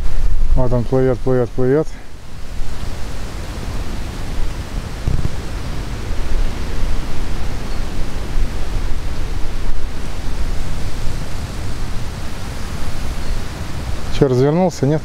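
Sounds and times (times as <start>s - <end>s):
wind buffeting microphone: 0.0s - 15.0s.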